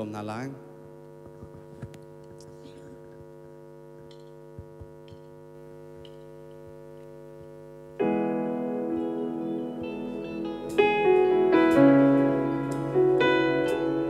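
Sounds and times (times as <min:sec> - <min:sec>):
loud keyboard chord: 0:07.9 - 0:14.0
keyboard pad chord: 0:08.0 - 0:14.0.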